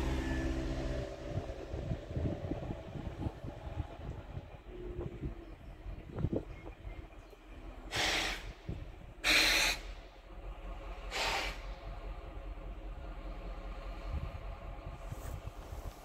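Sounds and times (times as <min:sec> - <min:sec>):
low rumble: 0:00.0 - 0:09.2, 0:09.8 - 0:16.0
air brake hisses: 0:07.9 - 0:08.6, 0:09.2 - 0:10.0, 0:11.1 - 0:11.7.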